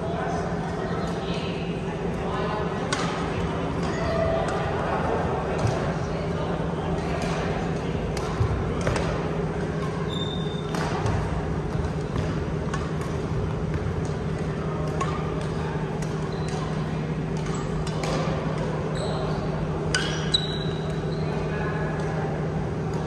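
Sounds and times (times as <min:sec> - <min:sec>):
steady hall hum: 0:00.0 - 0:23.0
sneakers squeaking on court: 0:09.6 - 0:14.0
racket hitting shuttlecock: 0:10.6 - 0:16.6.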